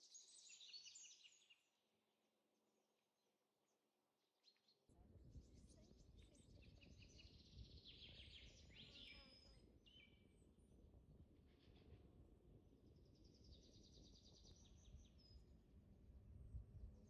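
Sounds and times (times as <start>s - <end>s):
small birds chirping: 0.0s - 1.7s, 4.4s - 10.4s, 13.0s - 15.4s.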